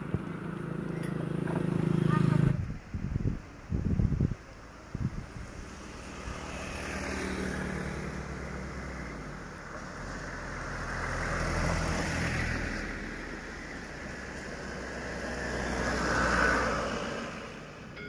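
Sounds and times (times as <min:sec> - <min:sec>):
car passing on asphalt: 0:04.7 - 0:18.0.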